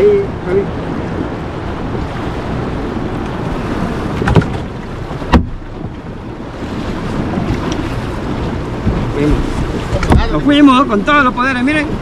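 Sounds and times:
wind buffeting microphone: 0:00.0 - 0:12.0
knocks on boat deck: 0:04.1 - 0:06.0, 0:08.8 - 0:10.5.

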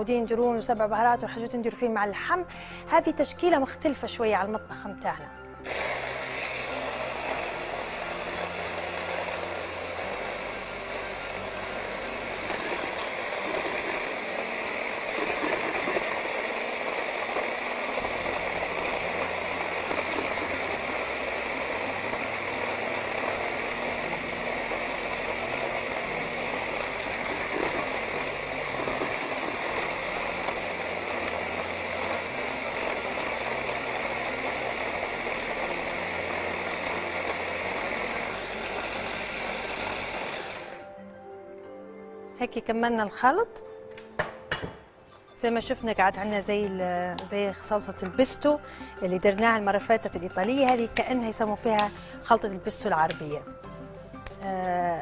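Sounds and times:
hand blender motor whirring: 0:05.6 - 0:40.9.

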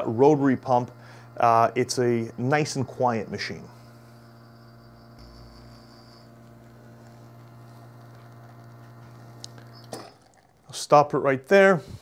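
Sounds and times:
espresso pump humming: 0:00.0 - 0:12.0.

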